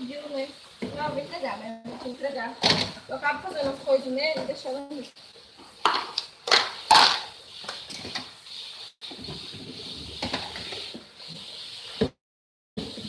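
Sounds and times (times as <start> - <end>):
plastic containers clattering: 5.8 - 7.3
plastic containers knocking and shuffling: 5.8 - 8.3.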